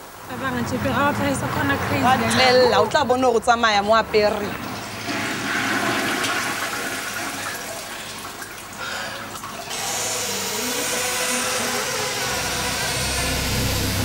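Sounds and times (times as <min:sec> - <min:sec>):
toilet flushing: 0:04.2 - 0:14.0
low hum: 0:10.2 - 0:14.0.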